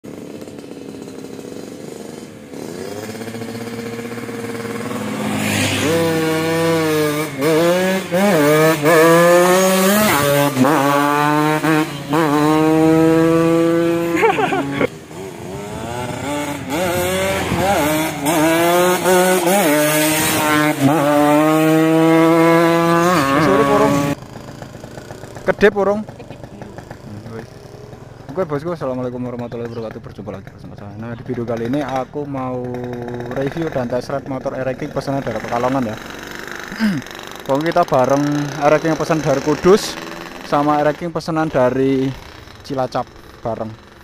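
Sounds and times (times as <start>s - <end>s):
motorcycles accelerating hard: 0.0s - 44.0s.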